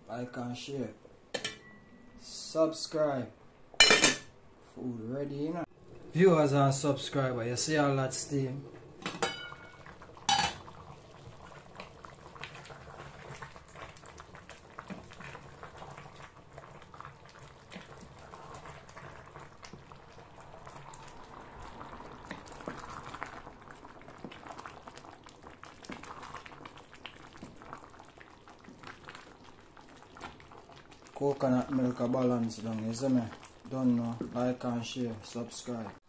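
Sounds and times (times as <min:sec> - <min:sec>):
metal pot lid clanking: 0:03.8 - 0:04.2, 0:09.0 - 0:09.7, 0:10.3 - 0:10.6
stew simmering and bubbling: 0:05.6 - 0:36.0.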